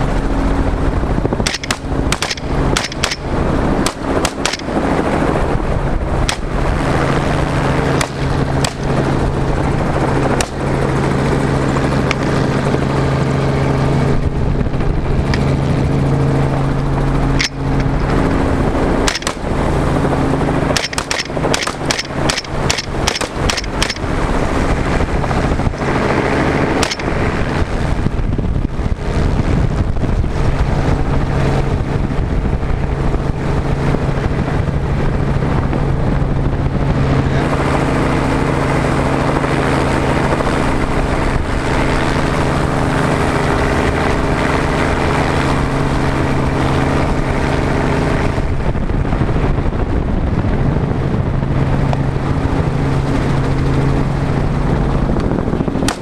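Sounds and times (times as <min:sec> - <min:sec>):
helicopter engine and rotor drone: 0:00.0 - 0:56.0
suppressed rifle shots: 0:01.4 - 0:05.1, 0:06.2 - 0:06.8, 0:07.9 - 0:09.1, 0:10.4 - 0:10.8, 0:17.4 - 0:18.1, 0:19.0 - 0:20.0, 0:20.7 - 0:24.2, 0:26.7 - 0:27.4.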